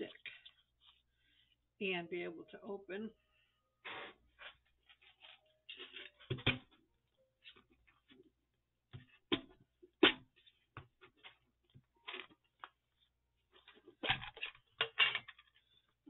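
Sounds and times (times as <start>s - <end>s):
paper rustling: 4.4s - 6.5s.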